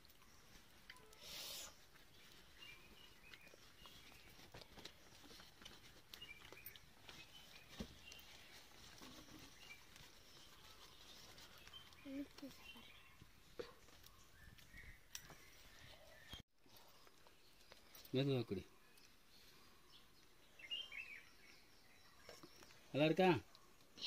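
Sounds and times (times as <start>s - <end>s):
faint high chirps: 0.0s - 4.4s
rustle of leaves being handled: 0.0s - 13.3s.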